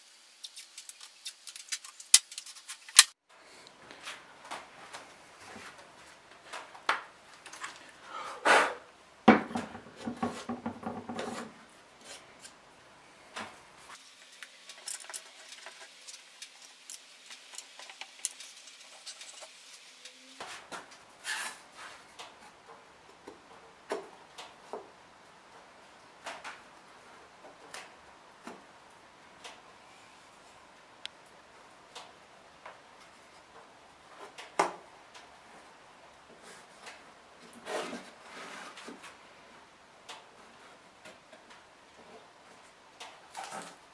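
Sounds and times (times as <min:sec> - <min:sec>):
wooden parts knocking on workbench: 0:09.3 - 0:11.4
wooden parts clattering: 0:14.3 - 0:19.6.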